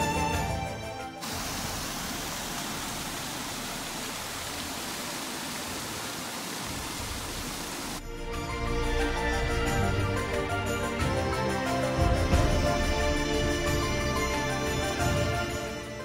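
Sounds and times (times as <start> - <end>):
background music: 0.0 - 1.3, 8.0 - 16.0
flowing water hiss: 1.2 - 10.9.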